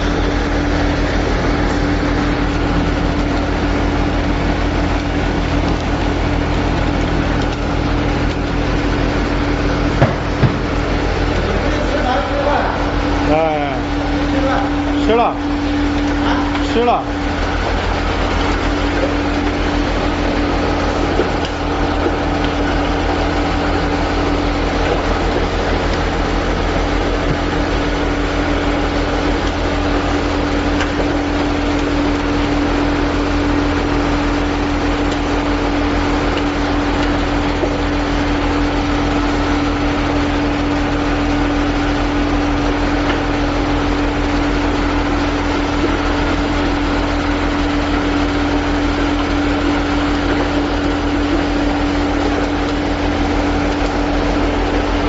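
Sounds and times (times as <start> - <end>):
machine motor and pump hum: 0.0 - 55.0.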